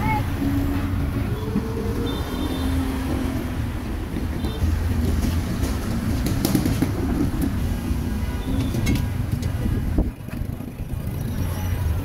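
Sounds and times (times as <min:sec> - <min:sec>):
engine hums: 0:00.0 - 0:12.0
traffic rumble: 0:00.0 - 0:12.0.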